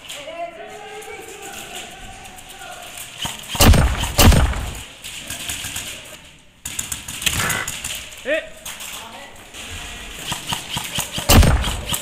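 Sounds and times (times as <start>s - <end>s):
rustling: 0.0s - 12.0s
loud thumps: 3.2s - 4.9s, 10.3s - 12.0s.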